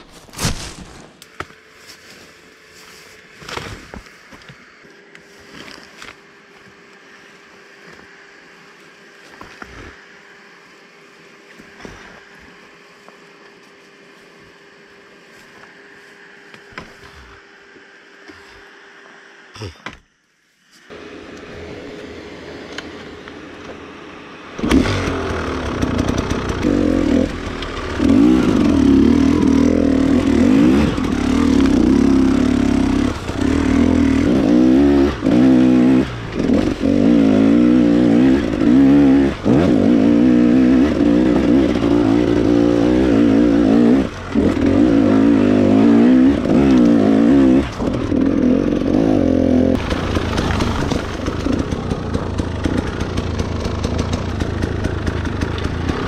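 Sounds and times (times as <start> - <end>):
dirt bike engine revving: 23.9 - 56.0.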